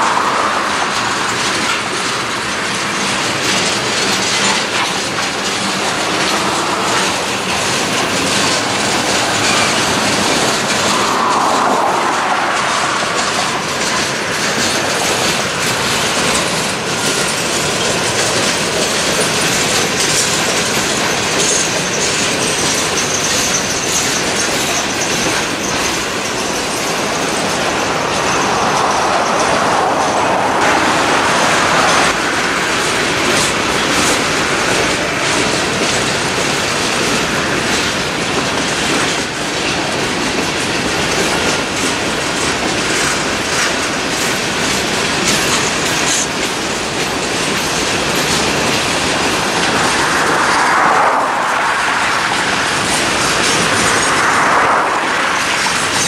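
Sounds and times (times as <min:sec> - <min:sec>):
high wheel squeal: 0:00.0 - 0:56.0
train wheels rumbling and clicking: 0:00.0 - 0:56.0.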